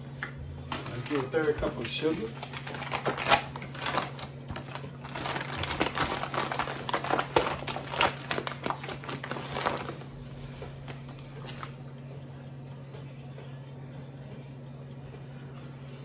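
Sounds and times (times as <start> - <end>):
paper bag crinkling: 0.7 - 11.8.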